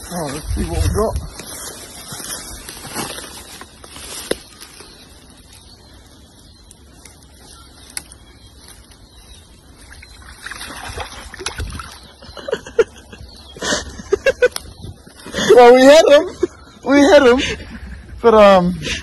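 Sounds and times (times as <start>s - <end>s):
river water trickling: 7.9s - 12.6s.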